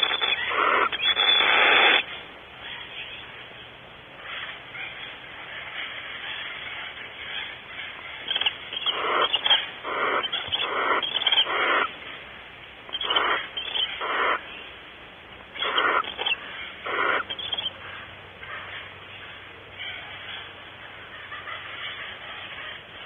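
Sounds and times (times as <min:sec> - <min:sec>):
barn owl hissing calls: 0:00.0 - 0:03.4, 0:04.2 - 0:23.0.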